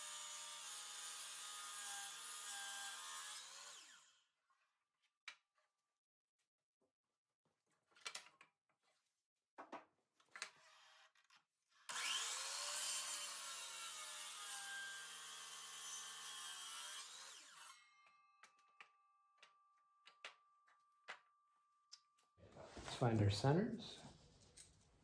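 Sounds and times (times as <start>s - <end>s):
miter saw cutting wood: 0.0s - 4.2s, 11.9s - 18.1s.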